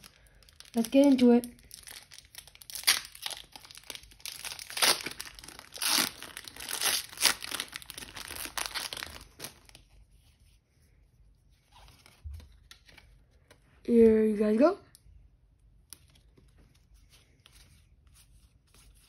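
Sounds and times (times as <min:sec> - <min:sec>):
foil wrapper tearing and crinkling: 0:00.0 - 0:09.8.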